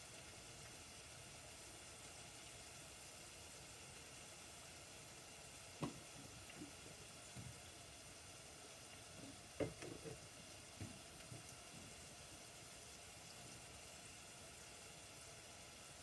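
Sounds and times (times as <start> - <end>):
wooden cabinet knocks: 9.6 - 10.2.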